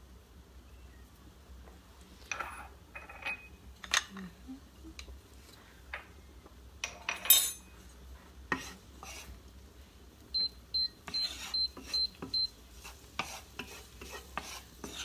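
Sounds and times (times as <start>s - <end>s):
utensils clattering against cookware: 6.8s - 7.8s.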